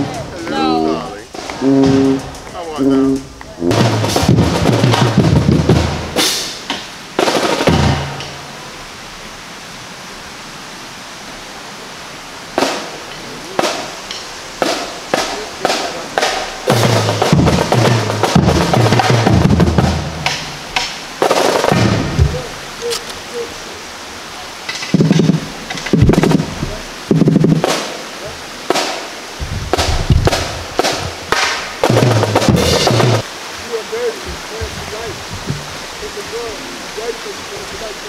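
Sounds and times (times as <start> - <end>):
pitched bass drum notes: 1.3 - 6.5, 15.1 - 20.6, 21.7 - 22.6, 25.0 - 27.8, 29.4 - 33.3
snare drum strokes and rolls: 1.3 - 8.5, 12.6 - 22.5, 24.7 - 36.5.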